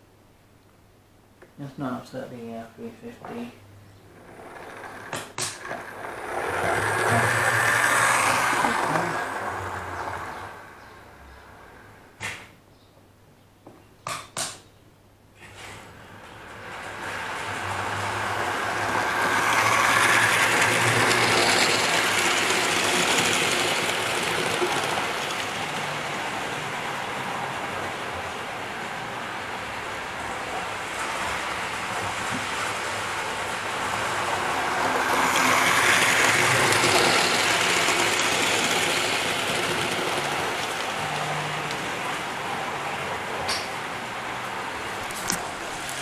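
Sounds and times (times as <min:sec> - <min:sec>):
model train motor whirring: 0:04.2 - 0:10.8, 0:16.4 - 0:28.0, 0:32.2 - 0:42.2.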